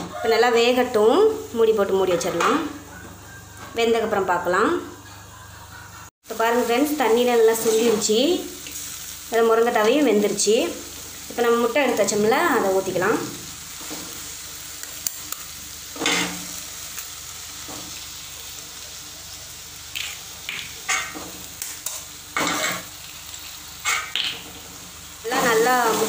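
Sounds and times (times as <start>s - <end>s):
leaves sizzling in hot oil: 0.1s - 2.9s, 6.2s - 26.0s
metal spatula scraping pan: 21.9s - 22.9s.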